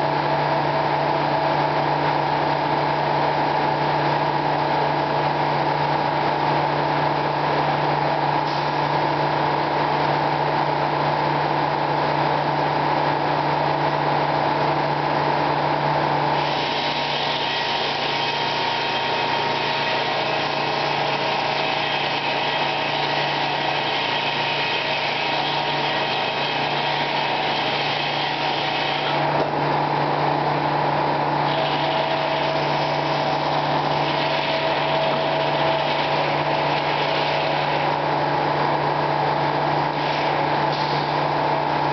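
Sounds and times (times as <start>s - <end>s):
saw blade cutting log: 16.3s - 29.5s, 31.4s - 38.0s, 39.8s - 41.2s
circular saw humming: 31.4s - 40.4s.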